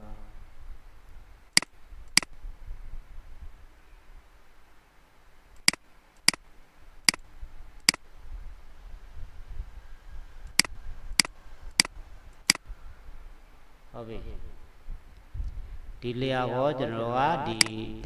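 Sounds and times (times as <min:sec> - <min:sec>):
computer mouse clicking: 0:05.6 - 0:06.4, 0:10.5 - 0:12.6.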